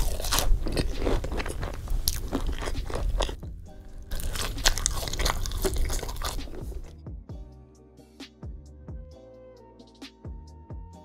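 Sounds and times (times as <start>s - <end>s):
crisp crunching bites: 0.0s - 6.9s
wet chewing: 0.0s - 6.9s.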